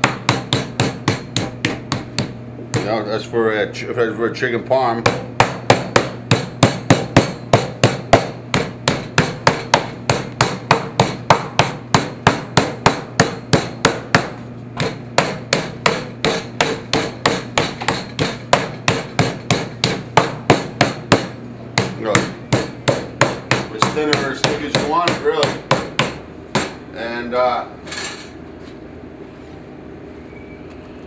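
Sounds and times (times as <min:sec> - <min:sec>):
mallet pounding meat on board: 0:00.0 - 0:03.0, 0:05.0 - 0:26.8.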